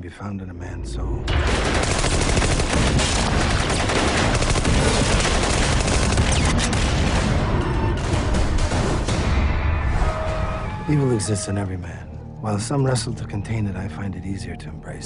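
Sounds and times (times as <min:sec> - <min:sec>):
rapid heavy gunfire: 0:01.3 - 0:09.3.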